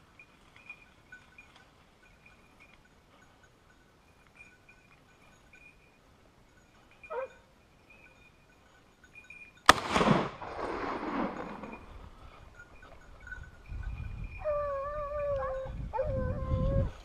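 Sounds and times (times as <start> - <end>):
rifle shot with rolling echo: 9.7 - 11.9.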